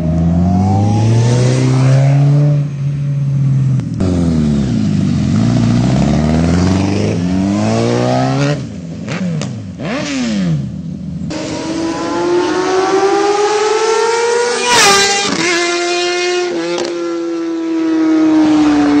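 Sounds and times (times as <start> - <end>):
motorbike passing by: 0.0 - 10.6
motorbike engine accelerating: 0.0 - 10.7.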